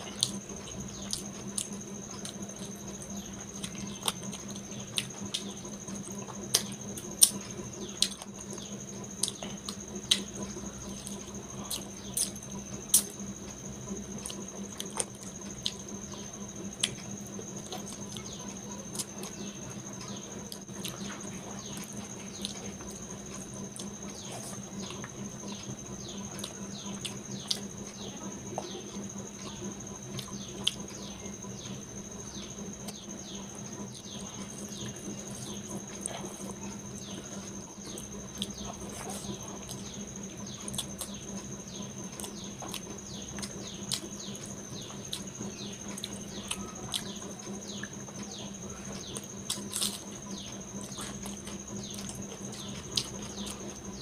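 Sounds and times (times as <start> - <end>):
wet eating and chewing: 0.0 - 54.0.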